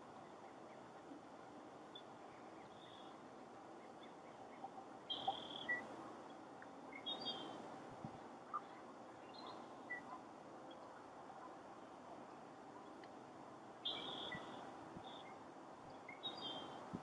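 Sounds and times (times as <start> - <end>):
faint outdoor ambience: 0.0 - 17.0
high bird chirps: 5.1 - 5.9, 13.8 - 15.3.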